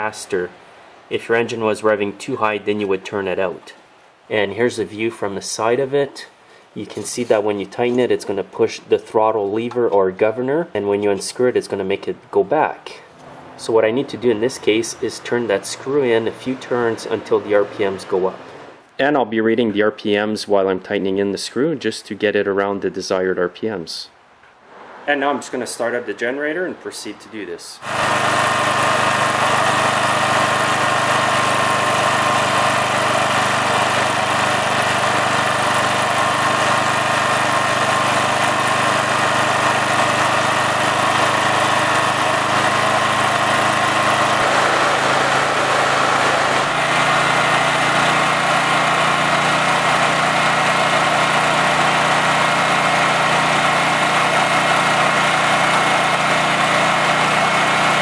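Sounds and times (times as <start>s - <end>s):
generator engine running: 13.2s - 18.8s, 27.8s - 58.0s.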